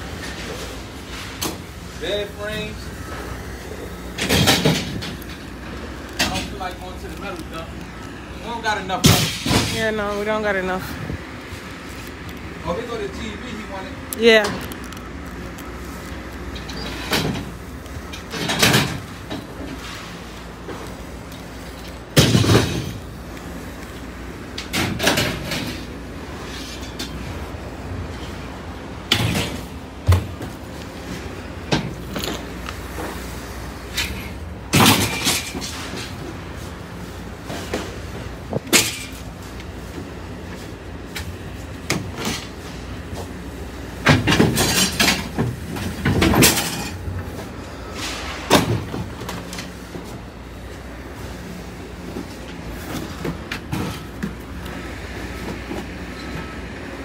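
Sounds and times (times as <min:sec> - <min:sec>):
metal rails clanking and scraping: 0:03.9 - 0:07.8, 0:24.4 - 0:33.2, 0:33.8 - 0:36.7, 0:43.9 - 0:50.2
objects knocking and clattering: 0:04.1 - 0:06.8, 0:21.8 - 0:23.1, 0:44.0 - 0:47.5.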